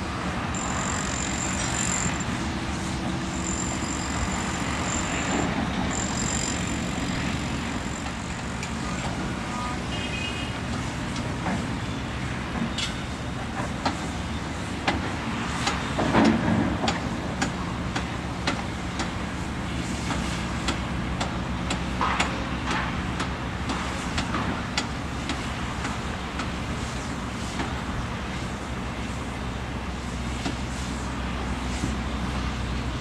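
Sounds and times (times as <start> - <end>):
excavator clanks and knocks: 15.7 - 19.2, 20.1 - 26.0.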